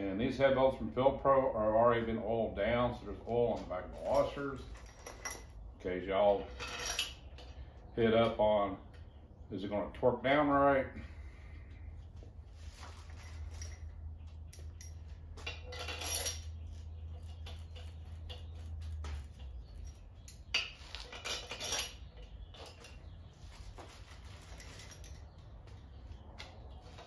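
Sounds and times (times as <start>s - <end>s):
metal bolts and washers clinking: 3.2s - 5.6s, 6.3s - 7.6s, 13.0s - 23.1s, 24.1s - 25.5s.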